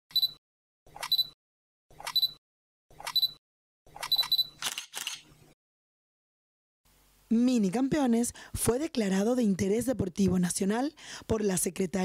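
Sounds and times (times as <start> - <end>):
camera shutter click with beep: 4.0 - 5.2.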